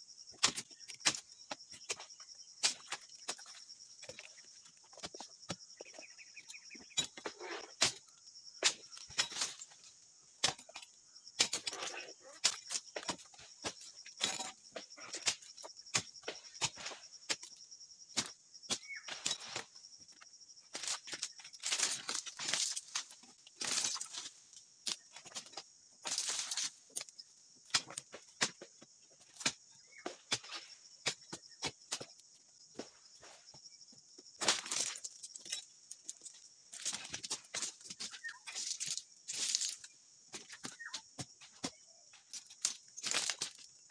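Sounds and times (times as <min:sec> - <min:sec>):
fronds rustling and scraping: 0:20.8 - 0:25.4, 0:34.4 - 0:39.9, 0:42.2 - 0:43.9.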